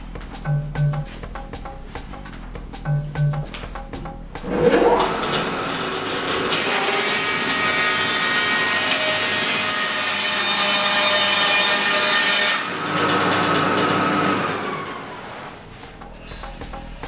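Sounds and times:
band saw cutting log: 4.4 - 15.3.

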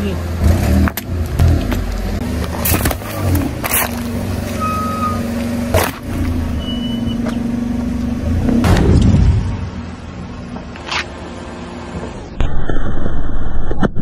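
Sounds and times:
car engine running: 0.0 - 12.4
tyre crushing objects: 1.3 - 4.2, 5.7 - 6.4.

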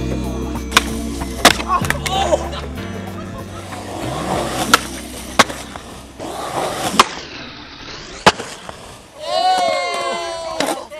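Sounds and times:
skateboard wheels rolling on concrete: 0.0 - 10.9
skateboard clacks: 3.6 - 7.2.

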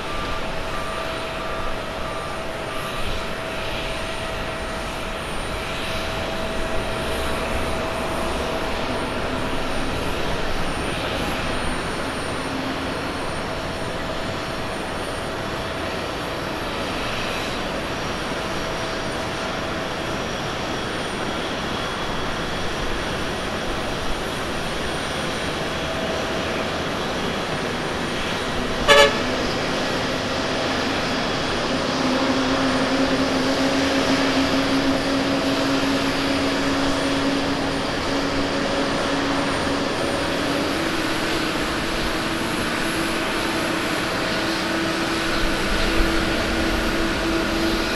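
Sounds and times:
jet engines idling: 0.0 - 47.9
short sharp toot: 28.9 - 29.6.

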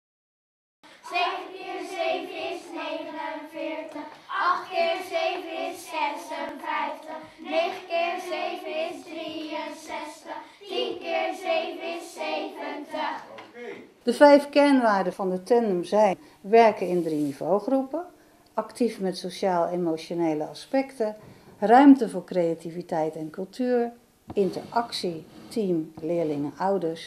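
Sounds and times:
children singing: 1.0 - 13.4.

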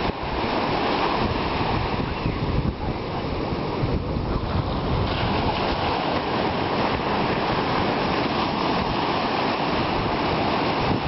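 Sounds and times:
small ocean waves breaking: 0.0 - 11.0.

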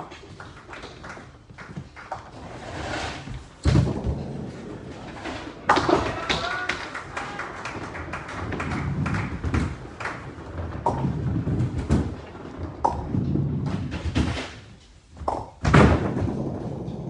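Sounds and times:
bowling ball rolling rumble: 0.0 - 17.0
bowling ball thudding: 3.2 - 17.0
pins crashing: 3.6 - 14.7
person shouting: 5.9 - 7.5.

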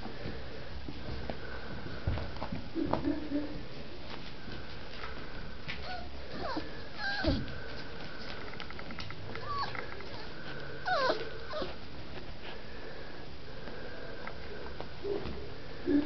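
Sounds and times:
puppies whimpering: 5.8 - 7.4, 9.4 - 11.8.

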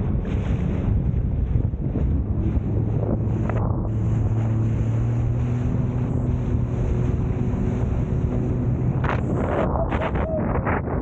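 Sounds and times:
jet ski engine running: 0.0 - 11.0
wind buffeting microphone: 0.0 - 11.0.

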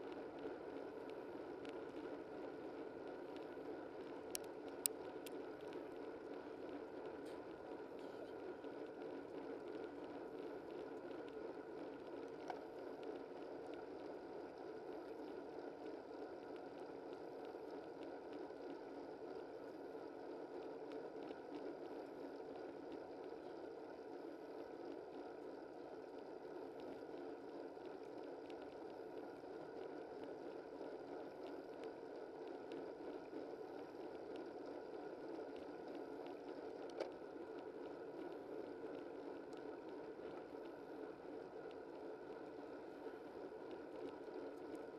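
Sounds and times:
faint click: 36.8 - 37.2.

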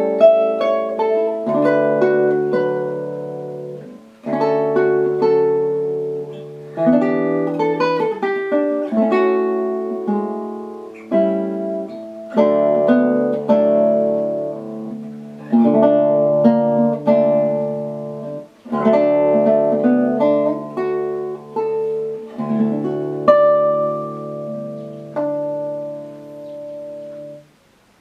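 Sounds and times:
classical guitar fingerstyle: 0.0 - 28.0.

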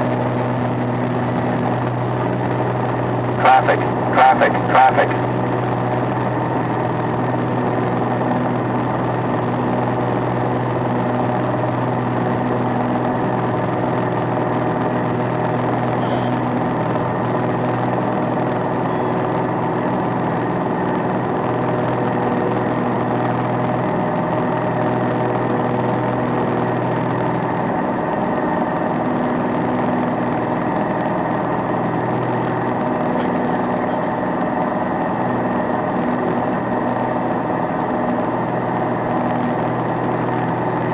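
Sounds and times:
light aircraft engine drone: 0.0 - 40.9.

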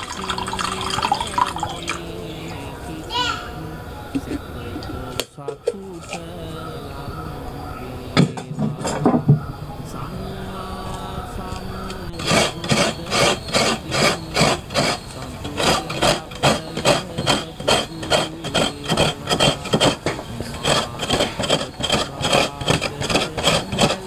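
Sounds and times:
coconut grating rasps: 0.0 - 2.8, 4.2 - 6.6, 11.5 - 24.0.

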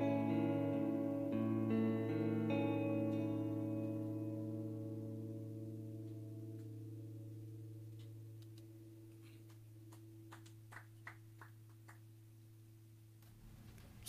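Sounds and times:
guitar chord ringing out: 0.0 - 10.3
low amplifier hum: 0.0 - 14.0.

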